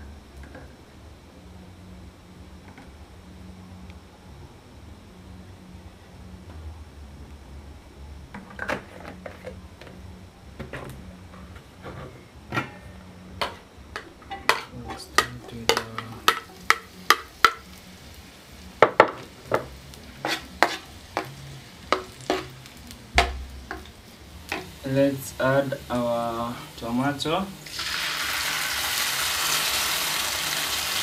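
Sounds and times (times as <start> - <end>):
onions sizzling in oil: 13.4 - 31.0
metal spoon clinking and scraping: 20.2 - 21.3.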